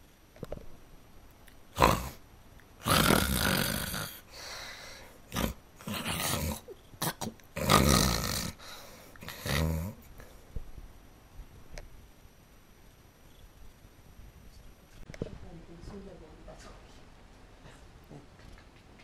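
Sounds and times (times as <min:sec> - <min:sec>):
person growling and snoring: 0:01.7 - 0:02.2, 0:02.8 - 0:10.2.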